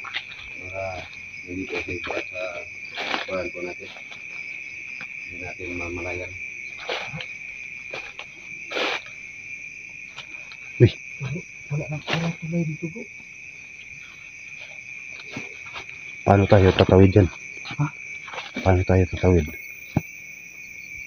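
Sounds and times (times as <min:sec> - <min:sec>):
movement through grass: 0:00.0 - 0:09.4, 0:13.6 - 0:19.0
crickets chirring: 0:00.0 - 0:21.0.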